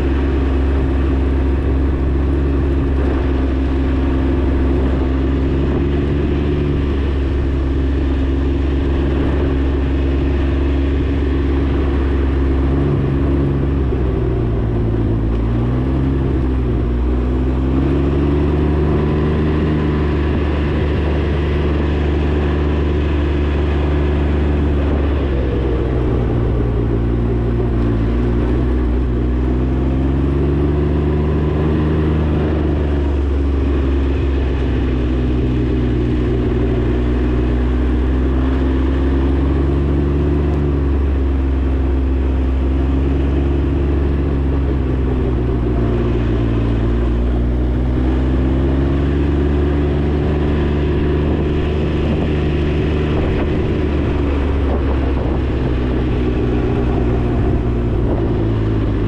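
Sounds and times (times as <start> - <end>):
three-cylinder engine running: 0.0 - 59.0.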